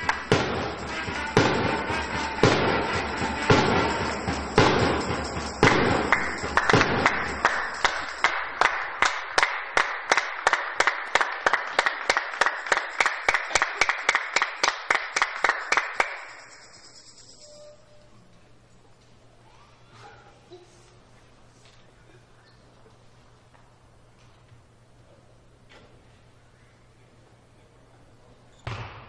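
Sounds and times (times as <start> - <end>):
spectators clapping rhythmically: 0.0 - 17.0.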